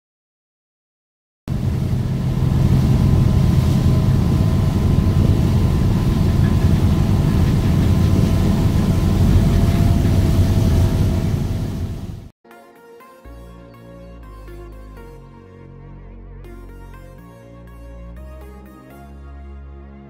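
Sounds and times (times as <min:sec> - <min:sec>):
faint steady hum: 0:01.5 - 0:12.2
churning wake water: 0:01.5 - 0:12.3
ferry engines rumbling: 0:01.5 - 0:12.3.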